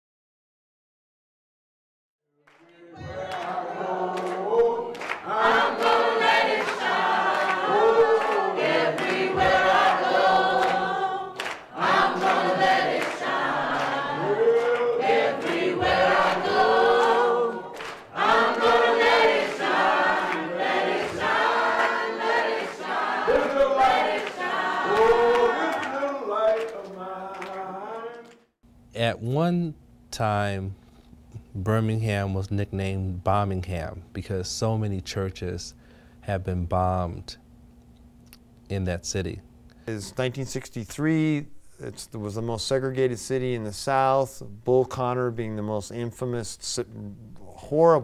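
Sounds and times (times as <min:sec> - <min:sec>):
choir singing: 0:02.5 - 0:28.3.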